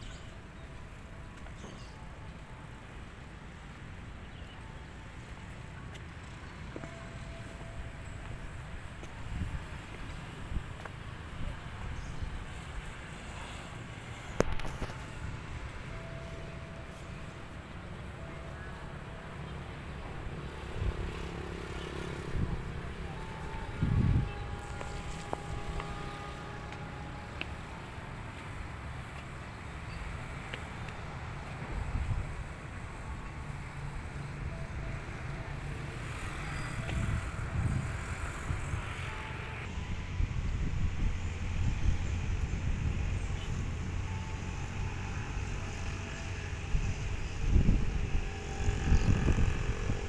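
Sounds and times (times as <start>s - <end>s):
faint held tone: 0.0s - 10.2s
distant motorcycle and car traffic: 0.0s - 50.0s
wind rumbling on microphone: 22.0s - 34.1s, 36.1s - 50.0s.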